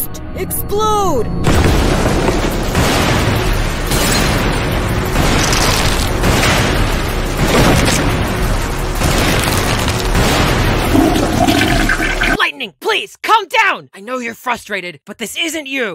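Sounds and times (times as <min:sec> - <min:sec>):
cartoon thunder cracks and booms: 0:01.4 - 0:12.4.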